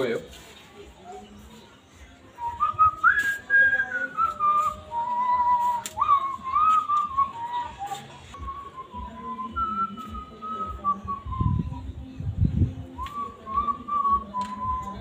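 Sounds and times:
person whistling a tune: 2.4 - 12.0, 13.0 - 15.0.

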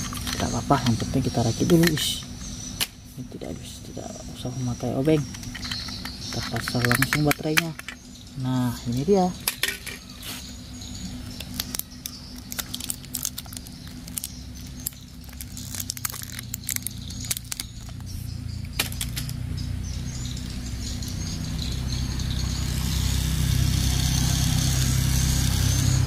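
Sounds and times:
plastic toy clicks and knocks: 5.2 - 8.0, 9.4 - 10.1.

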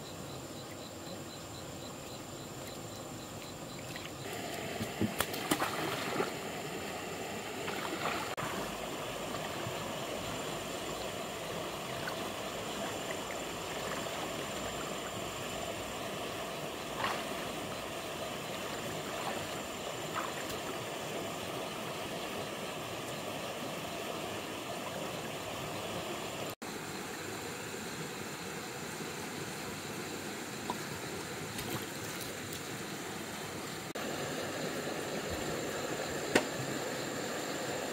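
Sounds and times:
stream water running: 0.0 - 37.9
water splashing: 3.8 - 23.2.

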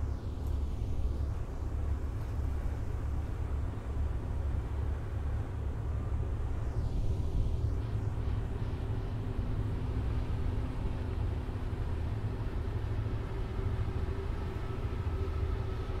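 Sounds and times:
faint steady drone: 0.0 - 16.0.

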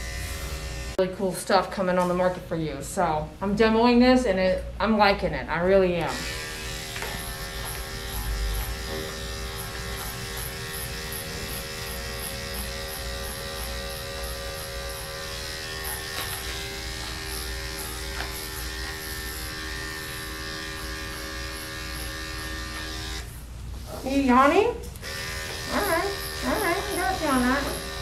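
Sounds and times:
electric clippers humming: 0.0 - 1.0, 6.0 - 23.4, 24.9 - 28.0.

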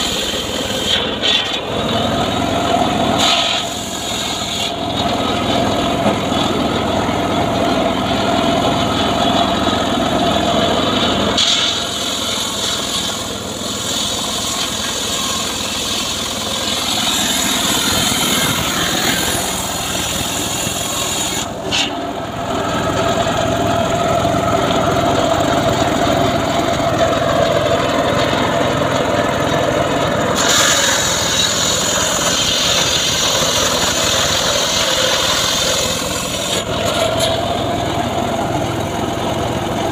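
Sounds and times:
log saw engine running: 0.0 - 39.9.

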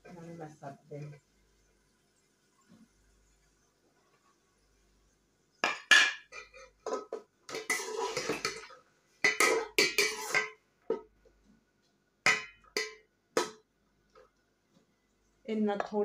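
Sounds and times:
metal skimmer scraping cooking pot: 6.3 - 10.6.

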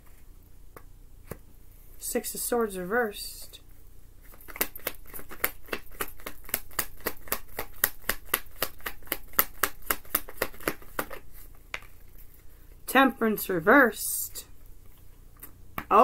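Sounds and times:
cards being shuffled: 4.2 - 12.5.

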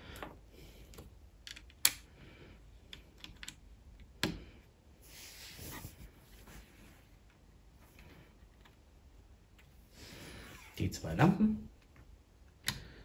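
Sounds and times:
plastic bricks clicking: 0.9 - 2.0
soft rustle: 5.0 - 8.8.

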